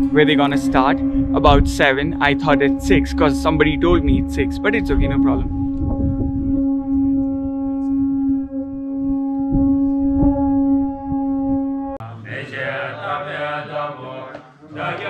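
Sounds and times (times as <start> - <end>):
horn holding a long note: 0.0 - 12.4
monks chanting: 12.0 - 15.0.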